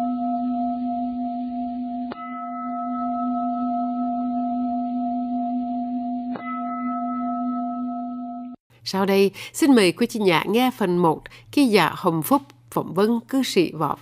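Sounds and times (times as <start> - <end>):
bowl bell ringing: 2.0 - 5.6
bowl bell strike: 2.0 - 8.6.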